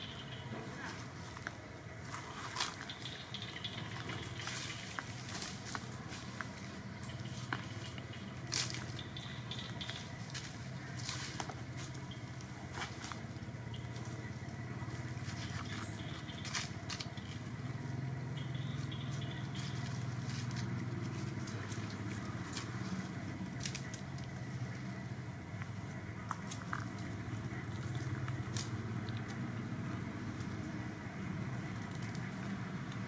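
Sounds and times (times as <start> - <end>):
steady low hum: 0.0 - 33.0
sharp clicks and crackles: 23.6 - 25.0, 31.6 - 33.0.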